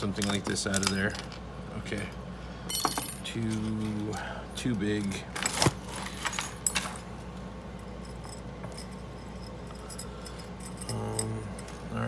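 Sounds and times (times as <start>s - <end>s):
lock picks clinking: 0.1s - 1.4s.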